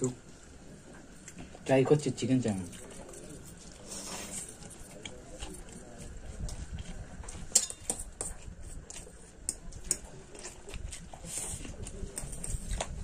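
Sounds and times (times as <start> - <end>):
forks clinking against plates: 7.5 - 8.1.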